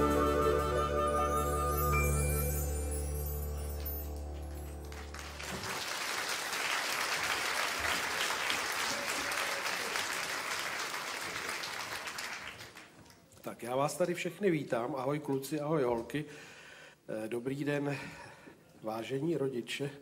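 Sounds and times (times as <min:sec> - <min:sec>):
sustained music chord: 0:00.0 - 0:05.4
audience applauding: 0:03.7 - 0:13.2.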